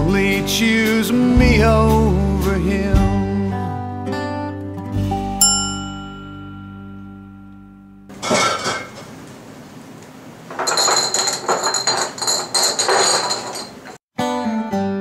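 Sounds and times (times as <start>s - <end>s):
rapid metallic clinking: 10.5s - 14.0s
sudden clatter: 10.5s - 14.0s.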